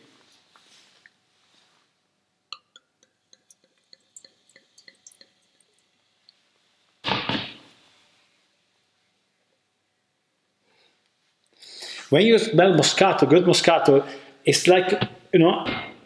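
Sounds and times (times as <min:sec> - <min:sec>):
wine pouring into a glass: 0:02.6 - 0:06.0.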